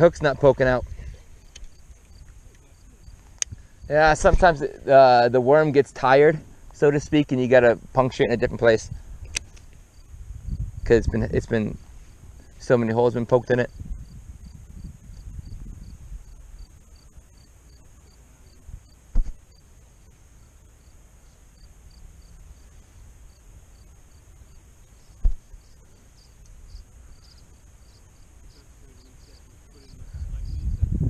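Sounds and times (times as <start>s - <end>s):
insect chirping: 0.0s - 31.0s
sharp knocks: 19.1s - 19.4s, 25.2s - 25.5s.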